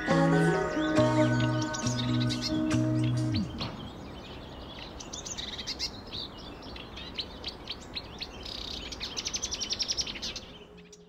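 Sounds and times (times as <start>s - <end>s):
fast bird trill: 0.0s - 6.0s
background hiss: 0.0s - 11.0s
birds chirping and singing: 0.0s - 11.0s.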